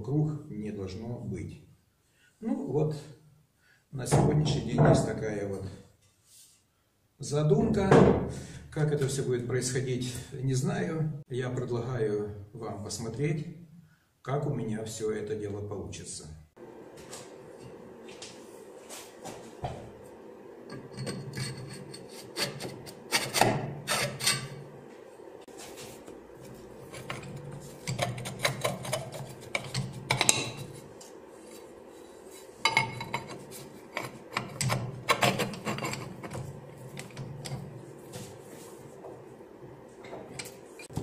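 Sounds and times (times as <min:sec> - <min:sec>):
metal knocks clinks and scraping: 0:32.5 - 0:37.7.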